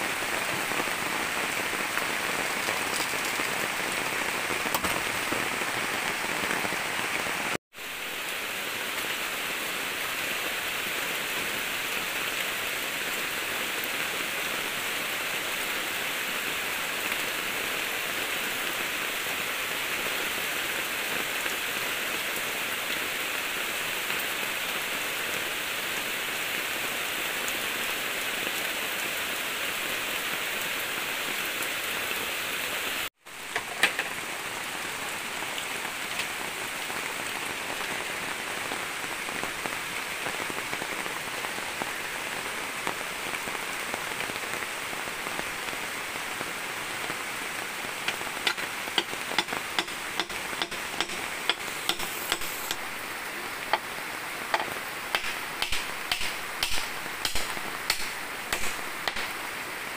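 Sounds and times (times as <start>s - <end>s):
water hissing: 48.1s - 53.9s.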